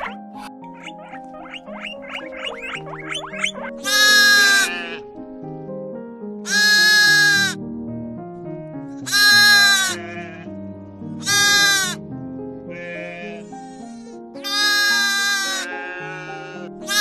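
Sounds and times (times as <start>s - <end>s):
background music: 0.0s - 17.0s
sheep bleating: 3.8s - 5.0s, 6.5s - 7.6s, 9.0s - 10.5s, 11.2s - 12.0s, 12.7s - 13.5s, 14.4s - 17.0s.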